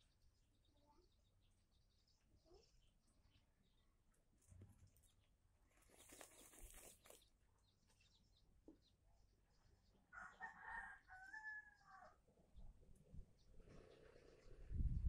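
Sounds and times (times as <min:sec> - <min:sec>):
hen feathers rustling: 0:05.6 - 0:07.3.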